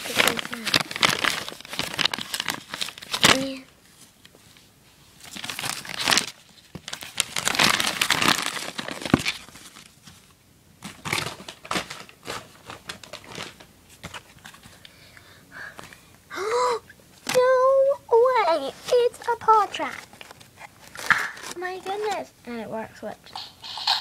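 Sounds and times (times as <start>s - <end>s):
wrapping paper crinkling and tearing: 0.0s - 4.3s, 5.2s - 14.7s, 18.2s - 22.3s.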